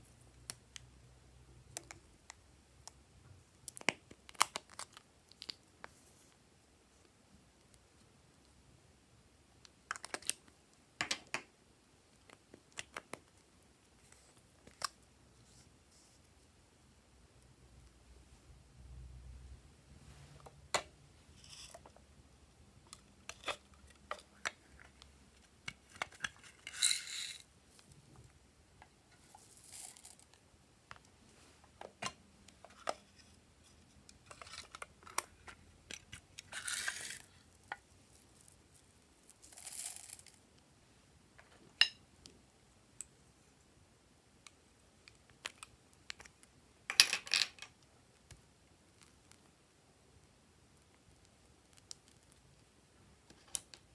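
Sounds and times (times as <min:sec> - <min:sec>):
beads pouring into glass bowl: 0:26.6 - 0:27.4, 0:29.2 - 0:30.3, 0:39.3 - 0:40.4.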